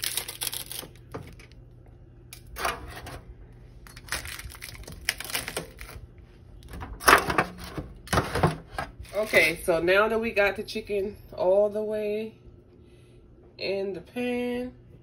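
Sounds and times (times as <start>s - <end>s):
aluminium foil pan crinkling: 0.0s - 1.6s, 3.9s - 6.0s, 6.8s - 9.6s.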